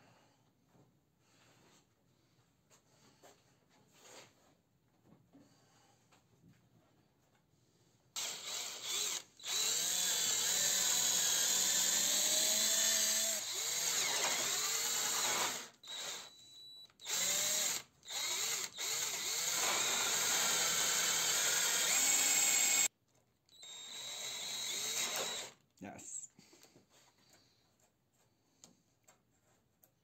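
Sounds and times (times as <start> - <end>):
cordless drill motor whining: 8.2 - 22.9, 23.5 - 25.6.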